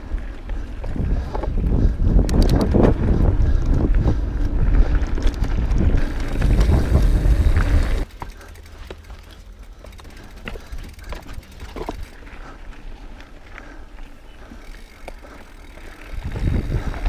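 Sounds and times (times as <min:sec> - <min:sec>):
wind buffeting microphone: 0:00.0 - 0:08.1, 0:15.6 - 0:17.0
bike tyres rolling over dirt: 0:00.0 - 0:17.0.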